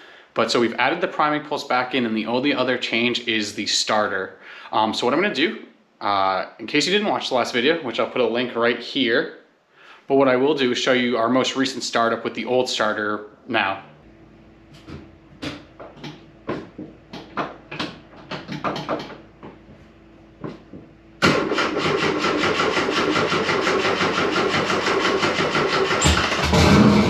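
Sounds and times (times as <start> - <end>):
starter motor cranking engine: 21.2 - 27.0.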